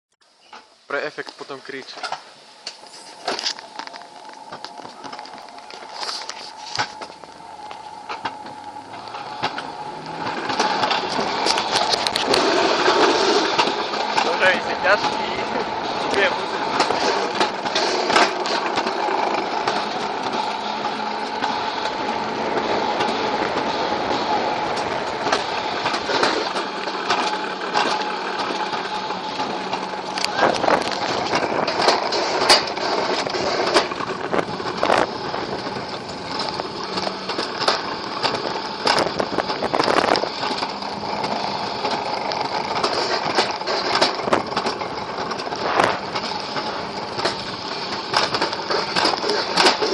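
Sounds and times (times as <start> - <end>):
sled wheels whining on track: 0.3 - 49.9
sharp clicks and knocks: 0.5 - 49.9
rushing air hiss: 8.8 - 18.1.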